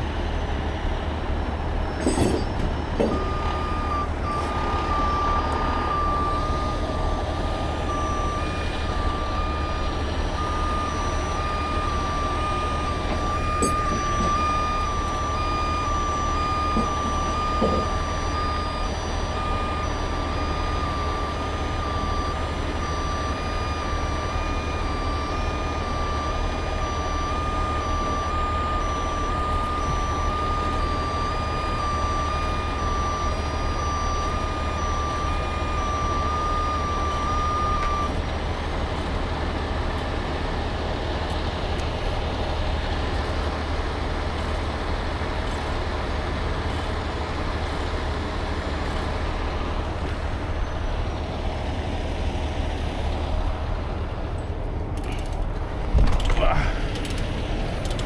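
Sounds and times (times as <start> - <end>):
diesel truck engine running: 0.0 - 58.0
truck back-up alarm beeping: 0.0 - 58.0.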